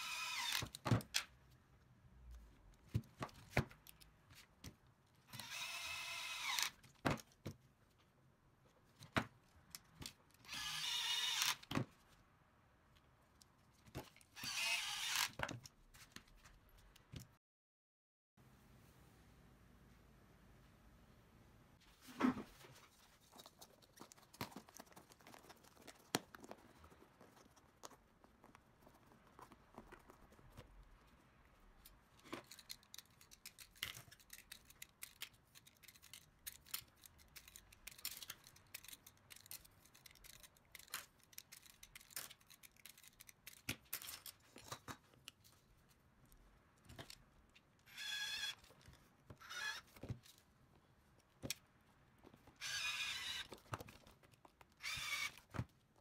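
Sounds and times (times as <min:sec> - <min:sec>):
plastic and metal parts handled: 0:22.0 - 0:56.0.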